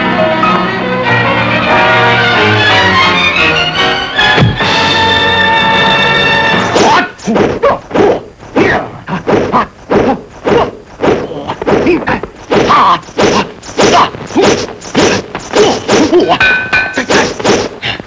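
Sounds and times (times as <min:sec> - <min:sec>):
fighters shouting and grunting: 0:06.6 - 0:17.8.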